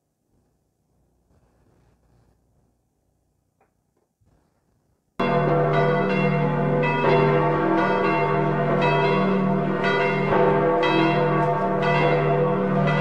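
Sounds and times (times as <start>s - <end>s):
church bells ringing: 5.2s - 13.0s.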